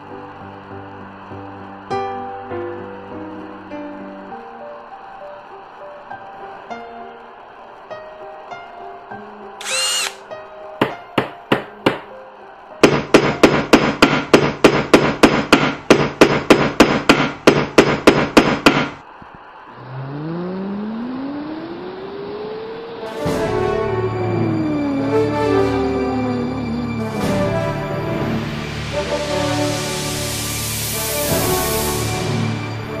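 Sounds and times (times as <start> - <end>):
soft music: 0.0 - 13.8, 23.0 - 33.0
knocks: 10.8 - 12.1, 12.8 - 19.0
loud hammering strikes: 10.8 - 12.1, 12.8 - 19.0
low tone gliding in pitch: 19.5 - 28.2.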